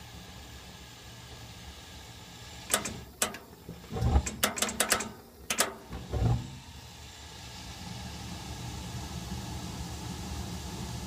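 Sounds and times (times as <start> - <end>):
gas furnace humming and hissing: 0.0 - 11.0
sharp clicks: 2.7 - 3.6, 4.2 - 5.8.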